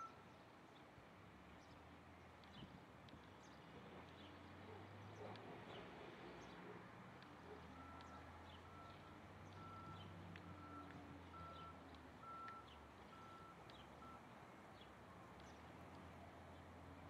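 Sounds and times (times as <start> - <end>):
low engine hum: 7.2 - 17.0
distant reversing alarm beeping: 7.7 - 14.3.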